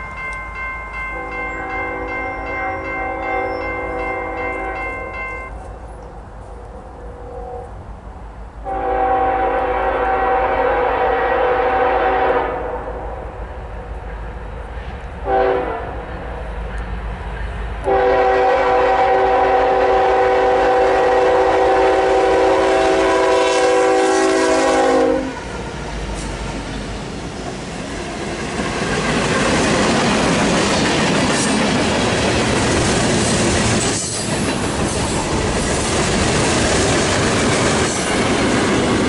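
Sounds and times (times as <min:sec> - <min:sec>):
train rolling noise: 0:00.0 - 0:39.0
locomotive air horn blasts: 0:01.2 - 0:05.0, 0:08.6 - 0:12.8, 0:15.2 - 0:15.9, 0:17.9 - 0:25.4.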